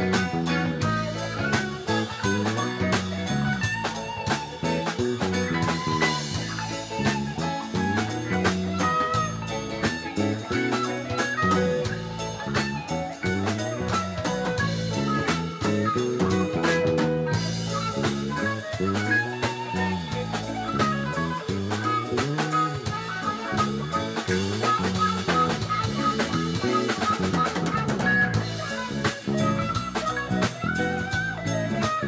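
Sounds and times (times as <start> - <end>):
drum kit snare and kick: 0.0 - 32.0
electric bass line: 0.0 - 32.0
electric guitars: 0.0 - 32.0.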